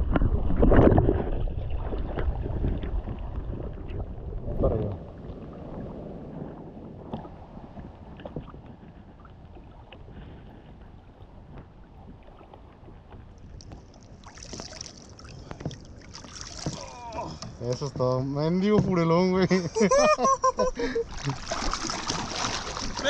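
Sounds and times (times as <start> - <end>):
sea water moving around kayak: 0.0 - 23.0
wind: 0.0 - 23.0.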